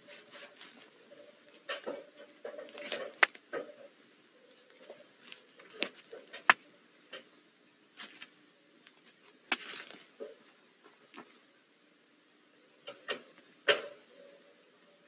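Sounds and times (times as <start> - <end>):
faint steady hum: 0.0 - 15.0
owl shifting on wood shavings: 9.5 - 10.4.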